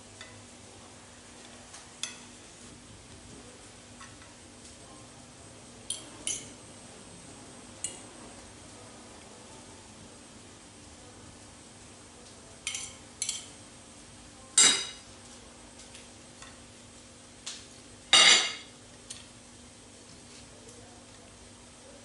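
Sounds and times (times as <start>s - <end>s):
metal utensils clinking on plate: 12.7s - 13.5s.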